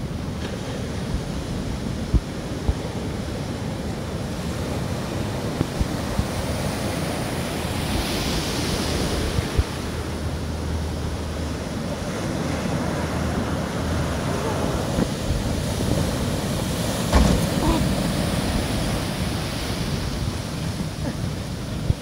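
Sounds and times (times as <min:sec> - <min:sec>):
surf breaking and rushing: 0:00.0 - 0:22.0
wind buffeting microphone: 0:00.0 - 0:22.0
boat engine humming: 0:08.8 - 0:22.0.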